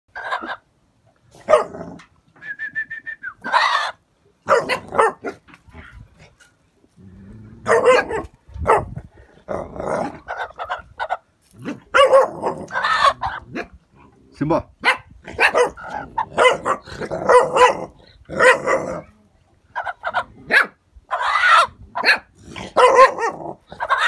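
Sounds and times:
puppies barking: 1.4 - 1.8, 3.4 - 5.5, 7.6 - 9.0, 10.0 - 13.7, 14.8 - 19.0, 19.8 - 24.0
puppies growling: 1.4 - 2.1, 4.5 - 8.4, 9.0 - 10.8, 11.5 - 14.3, 15.2 - 19.3, 21.2 - 24.0.

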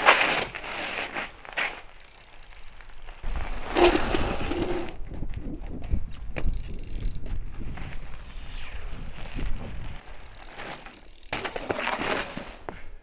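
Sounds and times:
bike sliding across ice: 0.0 - 5.0, 7.6 - 13.0
bike tyre skidding on ice: 0.0 - 5.1, 6.5 - 13.0
bike clicks: 0.0 - 13.0.

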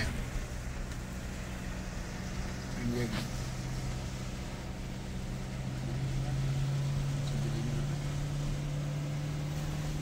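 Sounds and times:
car engine drone: 0.0 - 10.0
road noise: 0.0 - 10.0.

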